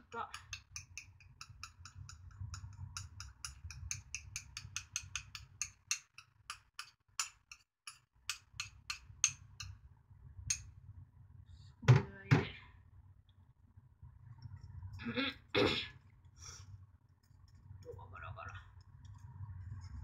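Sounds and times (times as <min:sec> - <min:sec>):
whisk clicking against saucepan: 0:00.2 - 0:09.8
faint low rumble: 0:10.0 - 0:20.0.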